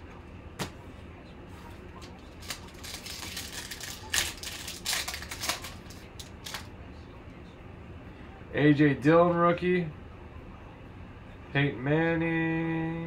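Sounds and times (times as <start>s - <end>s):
foil wrapper tearing and crinkling: 2.4s - 6.7s.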